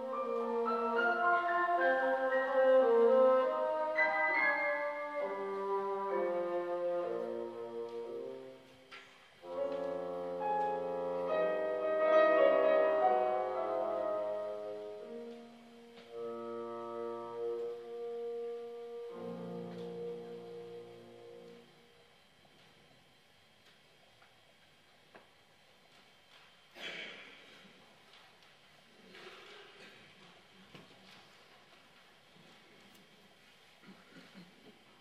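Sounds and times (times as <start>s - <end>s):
piano chords: 0.0s - 8.7s, 9.4s - 21.9s
bassoon: 0.0s - 22.3s.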